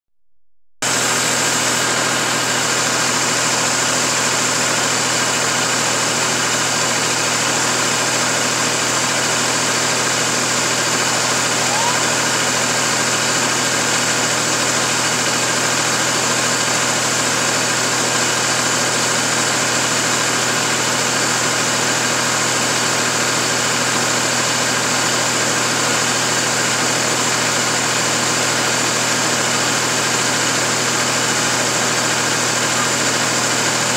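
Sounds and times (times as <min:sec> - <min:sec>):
steady machine drone: 0:00.8 - 0:23.0.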